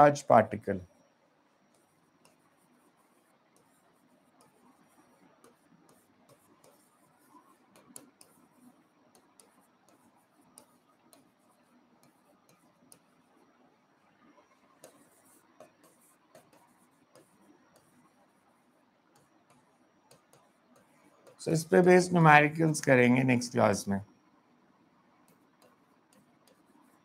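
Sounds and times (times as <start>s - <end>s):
stylus tapping on screen: 1.7s - 13.2s, 14.3s - 18.2s, 19.1s - 22.0s, 25.2s - 27.0s.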